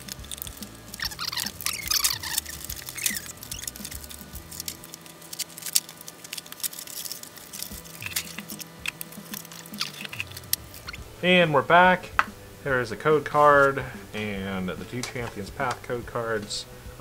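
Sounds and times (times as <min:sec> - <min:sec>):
cardboard and plastic rustling: 0:00.0 - 0:11.0
squeaky chirps: 0:00.6 - 0:05.6, 0:06.7 - 0:11.1.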